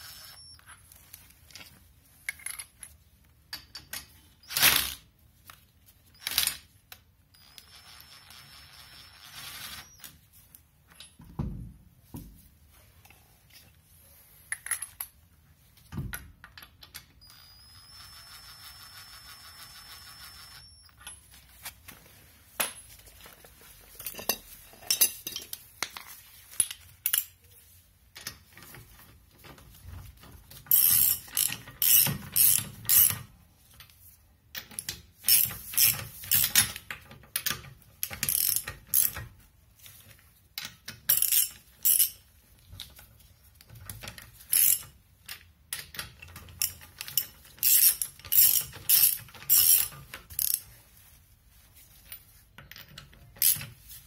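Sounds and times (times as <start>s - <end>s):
ratchet clicking: 30.7s - 33.1s, 38.0s - 39.2s, 46.6s - 50.6s.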